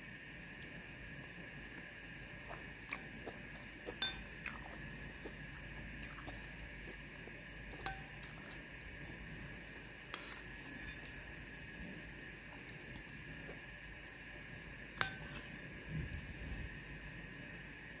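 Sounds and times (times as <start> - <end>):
metal spoon clinking on plate: 4.0 - 4.3, 7.8 - 8.2, 15.0 - 15.5.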